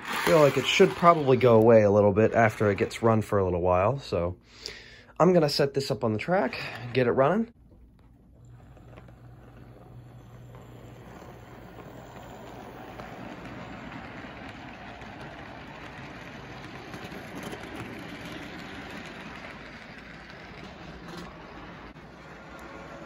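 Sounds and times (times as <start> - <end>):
model train rattling and whirring: 0.0 - 3.8, 8.0 - 23.0.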